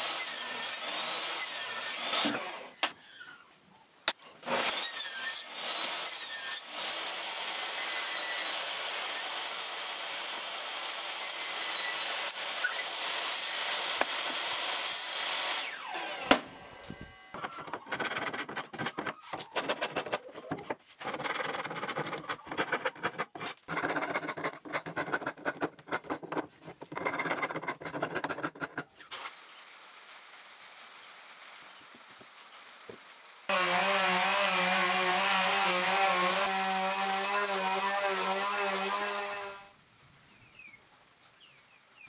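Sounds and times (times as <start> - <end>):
table saw cutting wood: 0.0 - 2.8, 4.4 - 16.4, 17.4 - 28.8, 33.5 - 39.7
hand rubbing strokes on wood: 17.4 - 29.0.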